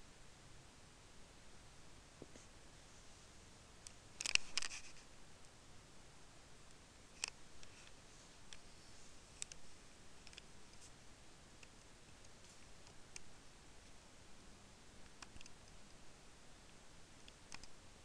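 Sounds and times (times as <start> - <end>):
computer mouse clicks: 3.8 - 5.0, 7.2 - 8.6, 9.4 - 9.6, 10.2 - 10.9, 15.0 - 15.9, 16.7 - 17.8.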